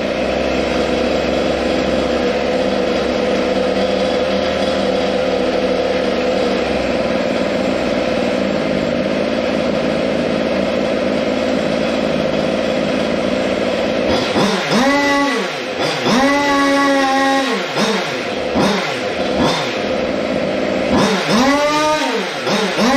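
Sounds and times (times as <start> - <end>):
engine revs rising: 0.0 - 22.9
small two-stroke engine running: 0.0 - 22.9.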